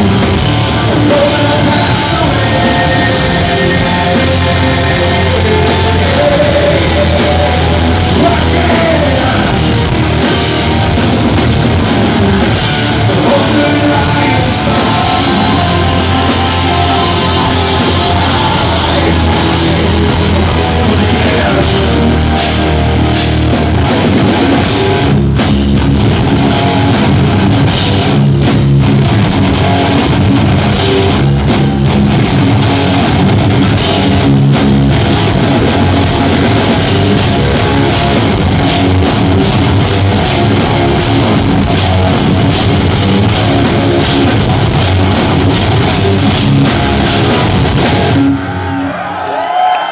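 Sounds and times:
person singing: 0.0s - 10.0s, 12.1s - 22.8s
heavy metal band playing: 0.0s - 49.9s.

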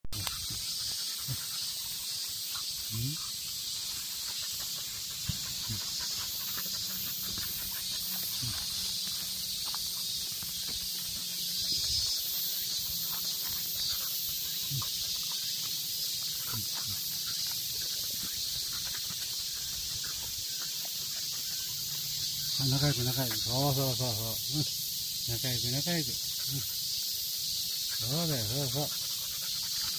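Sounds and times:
high-pitched insect chorus: 0.2s - 29.9s
dogs scuffing and sniffing: 3.5s - 23.5s.

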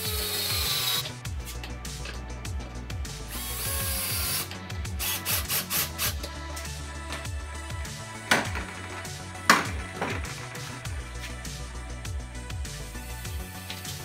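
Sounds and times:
cordless drill driving screws: 0.0s - 1.2s
background music: 0.0s - 14.0s.

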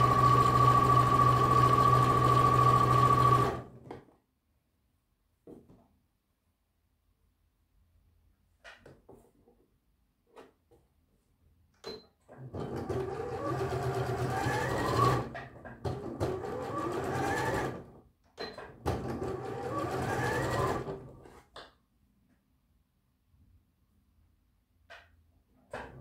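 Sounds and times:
sewing machine motor whine: 0.0s - 3.8s, 12.4s - 15.4s, 16.0s - 17.9s, 19.0s - 21.0s.

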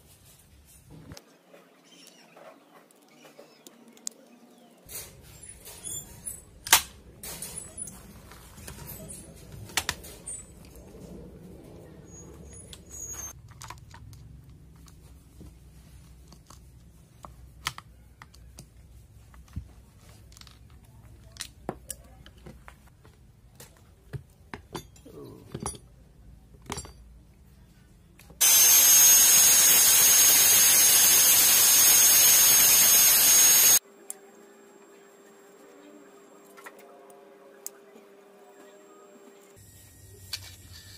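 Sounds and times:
angle grinder whining: 28.4s - 36.5s.

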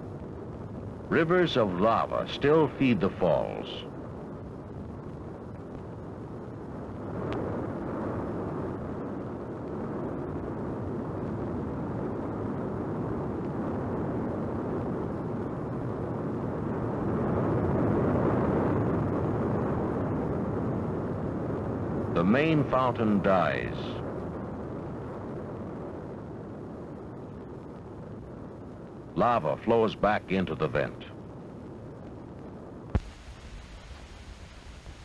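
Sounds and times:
lava fountain rushing rumble: 0.0s - 35.0s.

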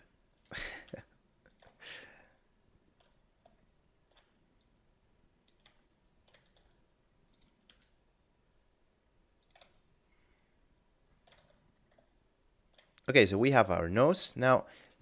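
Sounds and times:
mouse and keyboard clicks: 5.4s - 8.0s, 9.4s - 9.9s, 11.2s - 12.1s.

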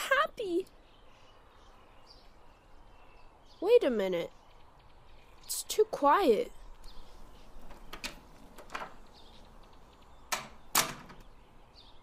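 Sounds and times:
sharp clicks and knocks: 7.6s - 11.4s.

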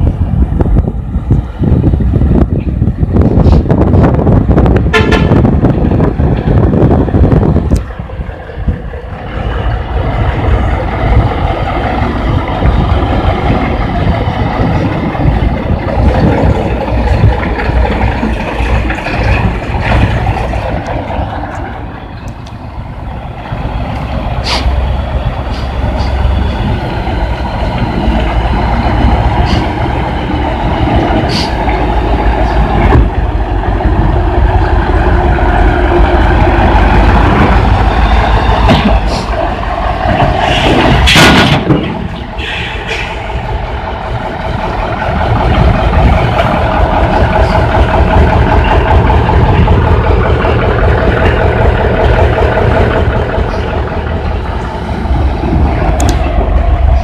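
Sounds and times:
diesel truck engine running: 0.0s - 57.0s.

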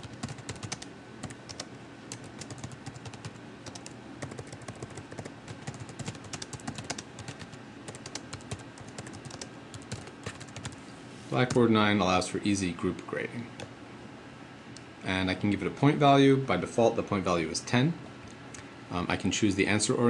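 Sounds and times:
keyboard typing clicks: 0.0s - 10.8s.

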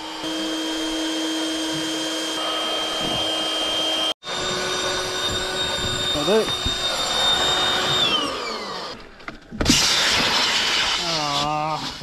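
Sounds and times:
electric air pump running: 0.0s - 9.1s.

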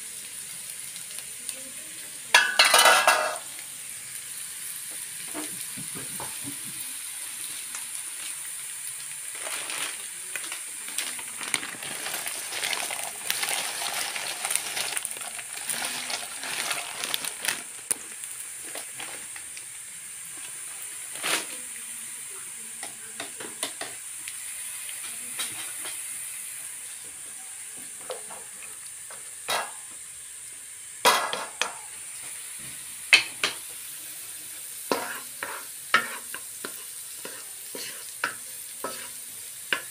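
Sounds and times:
vegetables sizzling in oil: 0.0s - 39.9s
spatula scraping and tapping pan: 29.1s - 29.8s, 34.9s - 39.9s.

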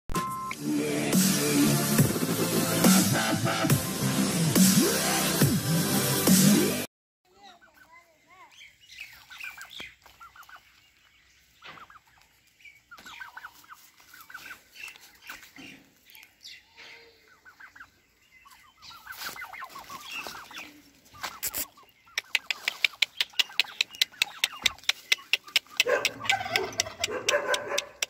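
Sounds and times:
turkeys clucking: 9.0s - 28.0s
rapid sharp clicks: 22.2s - 28.0s.

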